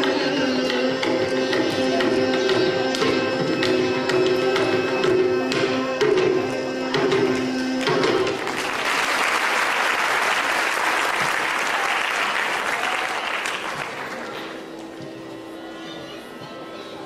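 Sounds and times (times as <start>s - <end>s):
man singing: 0.0s - 8.4s
audience applauding: 8.4s - 14.8s.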